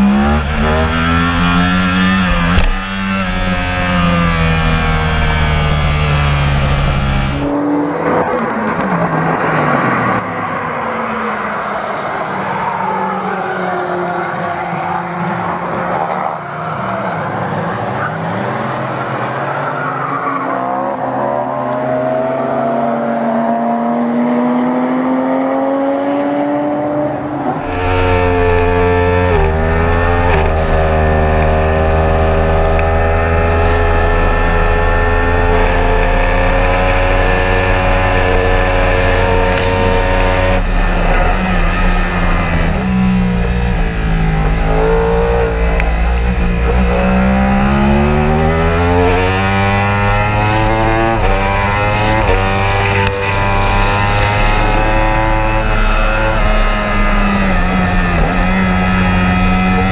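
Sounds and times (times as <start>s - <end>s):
motorcycle engine revving high: 0.0s - 10.1s, 22.3s - 59.9s.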